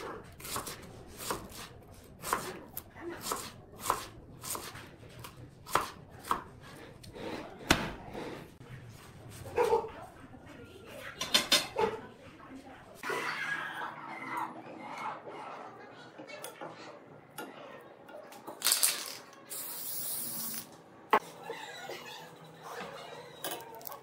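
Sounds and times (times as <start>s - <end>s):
knife slicing onion: 0.0s - 8.4s.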